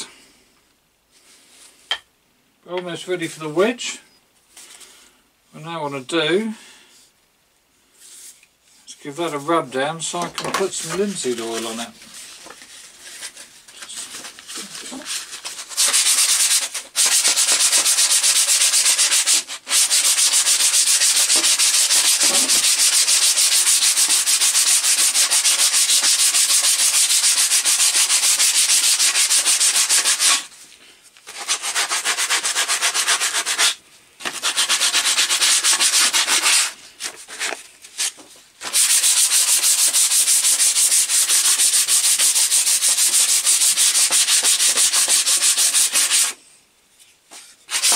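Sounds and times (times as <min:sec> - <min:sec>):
sandpaper rasping on wood: 0:13.9 - 0:30.6, 0:31.2 - 0:37.5, 0:38.6 - 0:46.4, 0:47.7 - 0:47.9.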